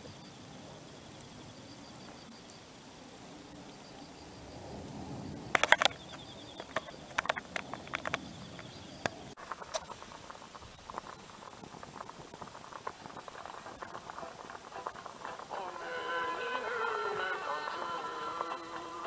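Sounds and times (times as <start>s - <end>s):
wood fire crackling: 5.4s - 19.0s
sharp clicks and knocks: 5.6s - 10.0s.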